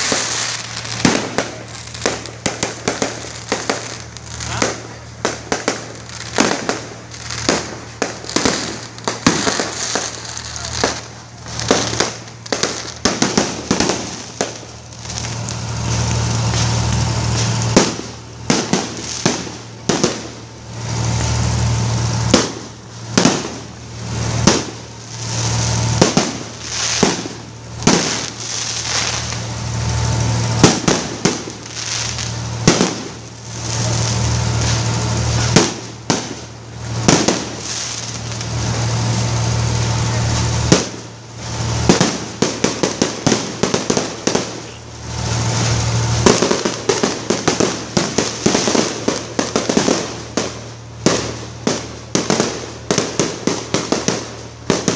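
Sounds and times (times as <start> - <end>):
fireworks bangs and crackling: 0.0 - 54.9
steady loud noise: 0.0 - 54.9.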